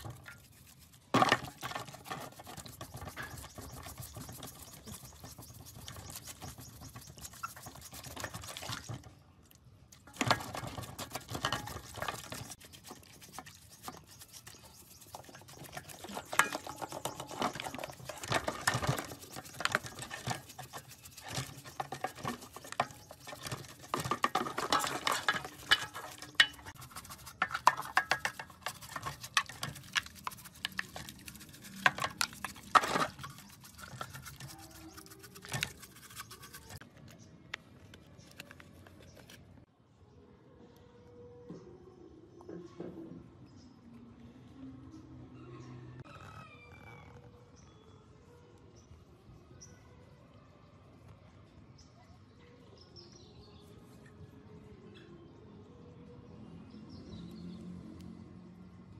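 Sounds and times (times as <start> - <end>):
water sloshing: 0.0 - 9.1, 9.9 - 36.8
brush scrubbing plastic: 0.0 - 9.2, 10.0 - 36.8.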